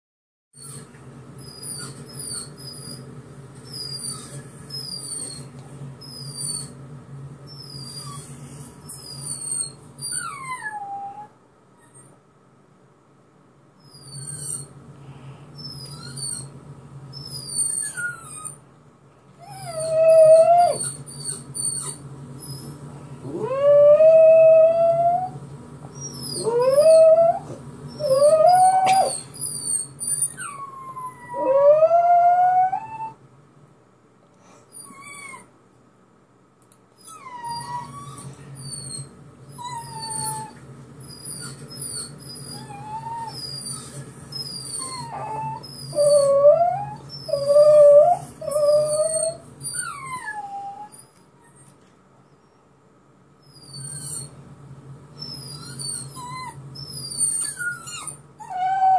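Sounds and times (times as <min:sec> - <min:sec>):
recorded dog whines: 0:00.6 - 0:06.8, 0:07.5 - 0:12.2, 0:13.8 - 0:14.8, 0:15.6 - 0:18.6, 0:19.4 - 0:33.2, 0:34.7 - 0:35.5, 0:37.0 - 0:52.7, 0:53.4 - 0:54.4, 0:55.1 - 0:58.9
dog howling: 0:19.4 - 0:25.4, 0:26.0 - 0:33.2, 0:41.3 - 0:51.0.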